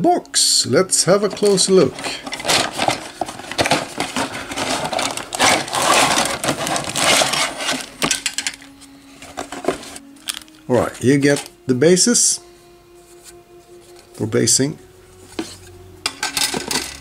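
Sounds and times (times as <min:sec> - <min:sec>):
plastic bag rustling: 0:01.1 - 0:08.6
plastic pieces clattering: 0:01.3 - 0:08.7, 0:16.1 - 0:17.0.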